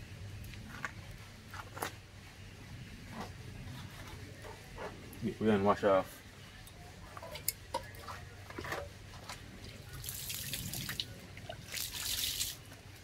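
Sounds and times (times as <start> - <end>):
water splashing and trickling: 9.6 - 12.7.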